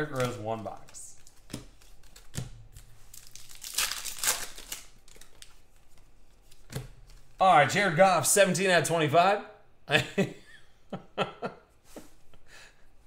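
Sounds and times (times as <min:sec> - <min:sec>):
plastic wrapper crinkling and tearing: 0:00.0 - 0:06.6.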